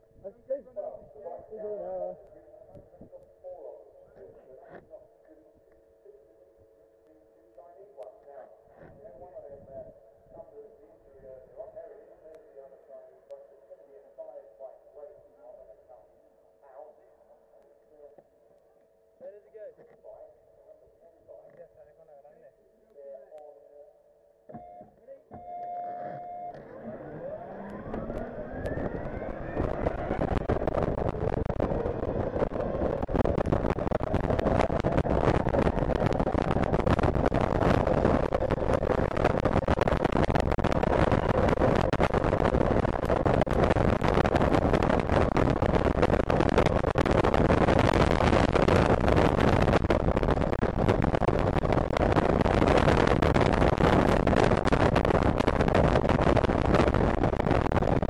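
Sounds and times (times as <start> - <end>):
electric motor whine: 26.0 - 30.4
wind rush on microphone: 27.6 - 58.0.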